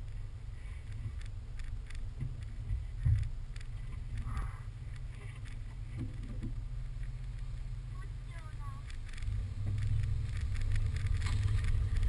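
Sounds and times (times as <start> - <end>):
car rumbling towing sled: 0.0 - 12.0
knocks and thumps: 1.0 - 4.6, 5.2 - 6.7, 8.9 - 12.0.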